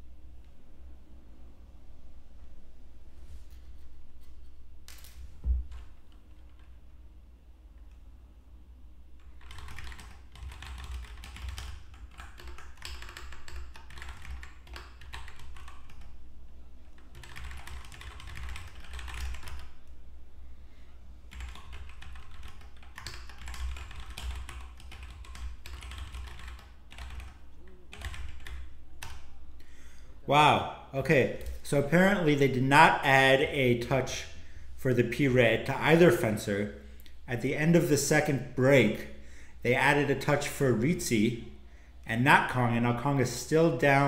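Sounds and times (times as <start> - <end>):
low steady hum: 0.0 - 44.0
typing on a keyboard: 9.2 - 16.1, 17.0 - 19.8, 21.3 - 29.3.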